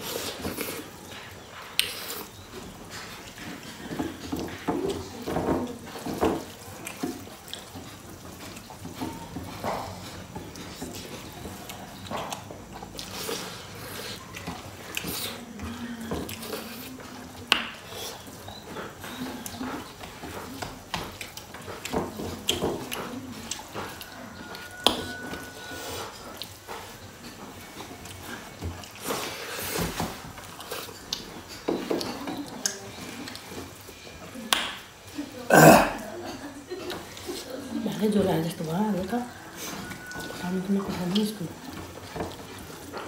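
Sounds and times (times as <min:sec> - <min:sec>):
chewing and mouth smacks: 0:00.0 - 0:05.3, 0:05.9 - 0:33.9, 0:39.6 - 0:43.0
hand mixing food on metal plate: 0:36.3 - 0:43.0.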